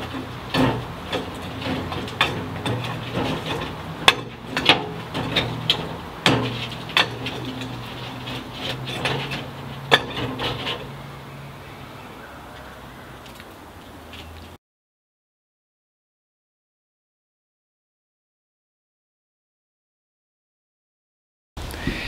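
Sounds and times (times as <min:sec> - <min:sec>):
steel bar clanking on metal: 0:00.0 - 0:11.1.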